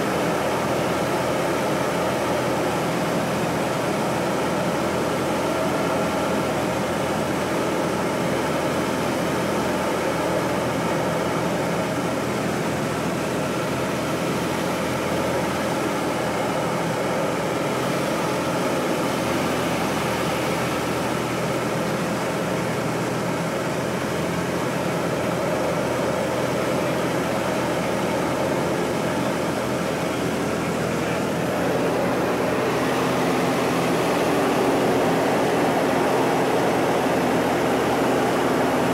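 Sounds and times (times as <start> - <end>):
airplane engine and propeller droning: 0.0 - 38.9
rushing airflow: 28.9 - 38.9.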